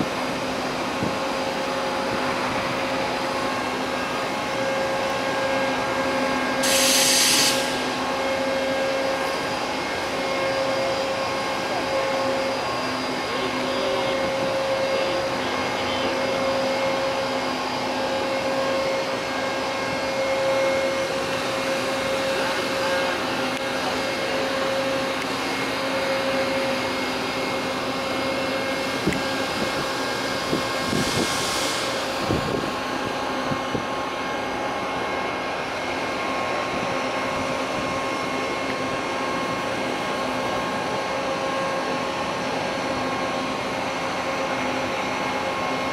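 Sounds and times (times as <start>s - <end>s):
machinery hum: 0.0s - 45.9s
brief hiss: 6.6s - 8.0s, 31.0s - 32.0s.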